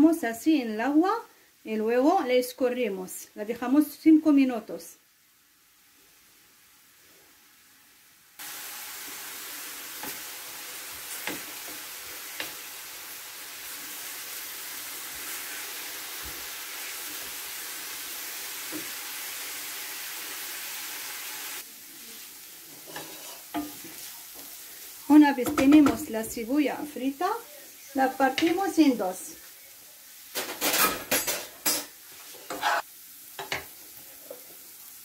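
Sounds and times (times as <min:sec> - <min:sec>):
onion sizzling in oil: 0:00.0 - 0:35.0
wooden spoon tapping pan: 0:25.4 - 0:26.1.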